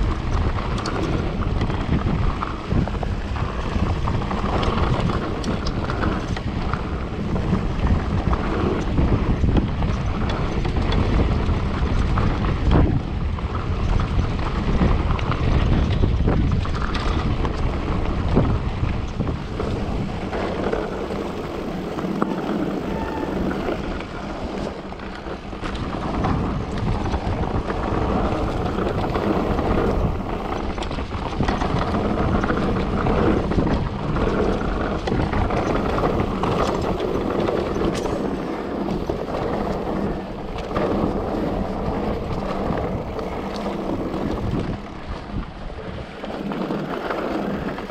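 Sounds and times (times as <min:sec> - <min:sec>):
bike knocks and rattles: 0:00.0 - 0:47.9
wind buffeting microphone: 0:00.0 - 0:47.9
tyres hissing over trail: 0:19.4 - 0:30.6.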